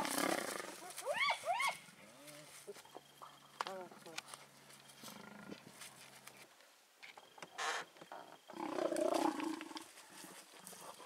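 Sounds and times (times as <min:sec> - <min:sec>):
leopard growling: 0:08.2 - 0:09.8.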